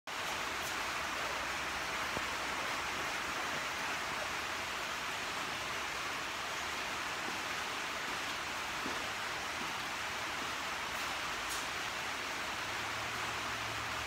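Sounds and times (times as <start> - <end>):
rain on a metal roof: 0.1 - 14.0.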